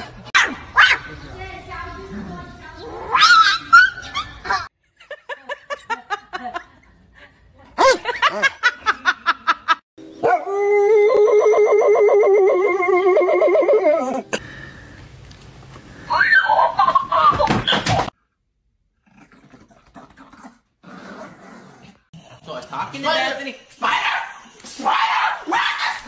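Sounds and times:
dog howling: 10.2s - 14.2s
dogs barking and yapping: 23.8s - 26.0s.

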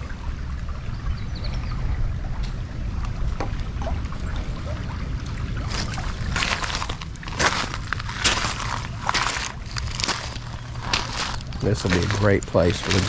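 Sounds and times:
creek water trickling over pebbles: 0.0s - 13.0s
wind rumble on microphone: 0.0s - 13.0s
footsteps on loose pebbles: 5.7s - 13.0s.

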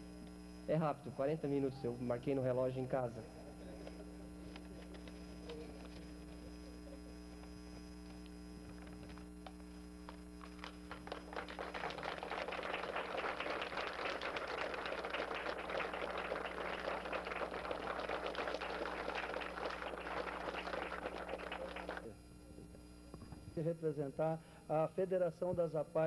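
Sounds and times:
audience applause: 10.6s - 22.1s.

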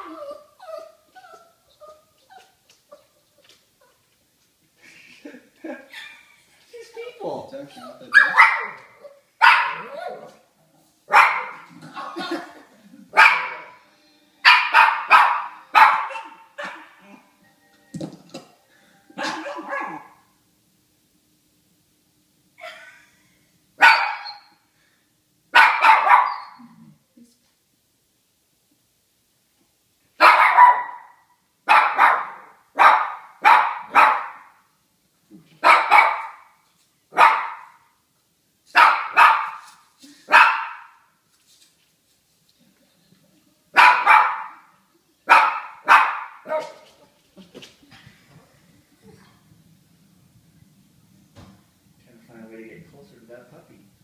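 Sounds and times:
dog barking: 8.1s - 10.3s, 11.1s - 11.7s, 13.2s - 13.8s, 14.4s - 17.0s, 19.2s - 20.2s, 23.8s - 24.5s, 25.6s - 26.6s, 30.2s - 34.6s, 35.6s - 37.8s, 38.8s - 39.6s, 40.3s - 41.0s, 43.8s - 44.7s, 45.3s - 46.8s.

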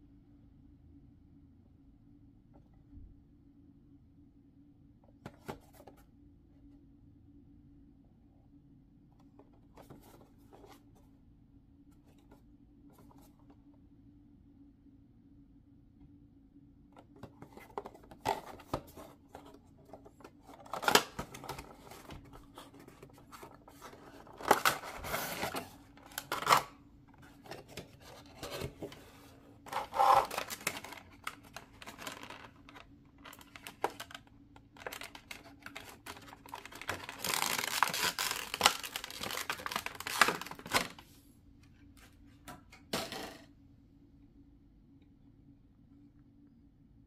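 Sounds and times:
plastic packaging crinkling: 17.4s - 29.1s, 29.7s - 41.0s
cardboard ripping and rustling: 20.5s - 26.7s, 29.7s - 34.2s, 34.8s - 41.0s.

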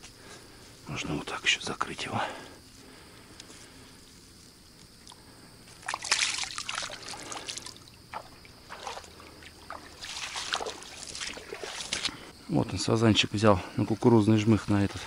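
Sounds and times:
water splashing and sloshing: 5.1s - 12.3s.

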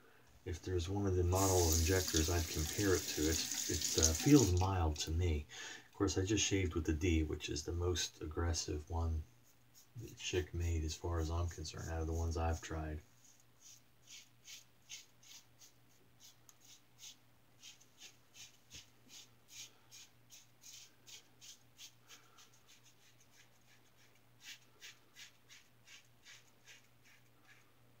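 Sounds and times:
razor scratching stubble: 13.6s - 27.7s.

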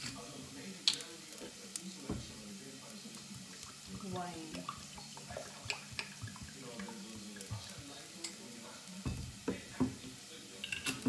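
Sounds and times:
faint sizzle in a pot: 0.0s - 11.0s
wine pouring with a gurgle: 3.0s - 7.9s
bottle and cup knocks: 9.0s - 10.0s.

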